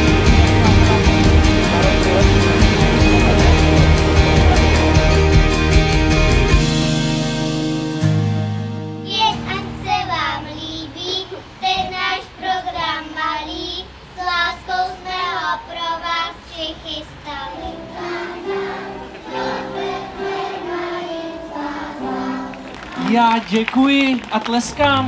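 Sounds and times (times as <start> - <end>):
children's choir singing: 0.0 - 5.6, 9.9 - 23.0.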